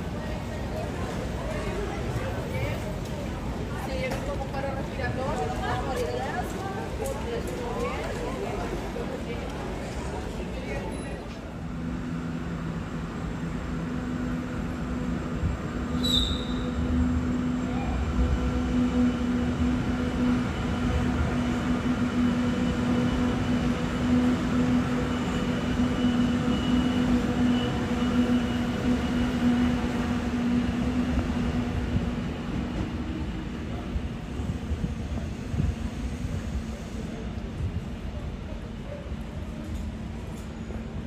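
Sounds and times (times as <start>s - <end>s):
train rumbling through station: 0.0s - 41.0s
brief high squeak: 16.0s - 16.8s.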